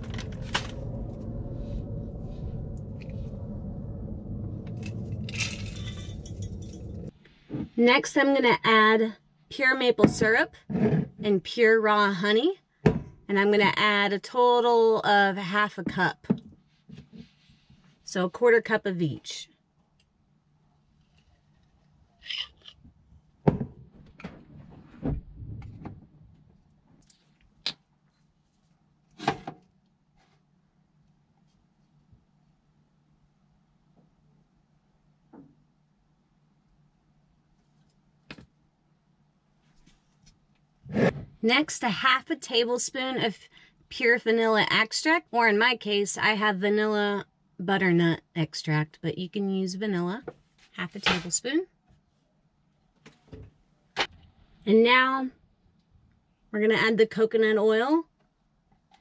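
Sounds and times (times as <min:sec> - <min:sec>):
steady low rumble: 0:00.0 - 0:07.2, 0:23.8 - 0:26.6.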